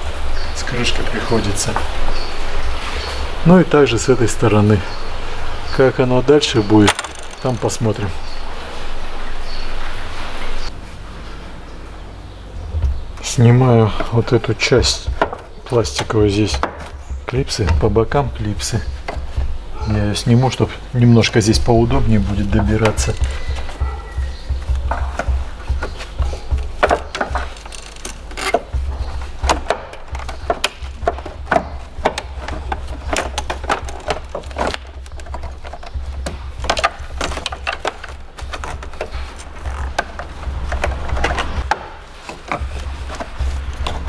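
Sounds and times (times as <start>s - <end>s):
steady low hum: 0.0s - 44.0s
plastic clips clicking and scraping: 6.6s - 7.9s, 24.7s - 44.0s.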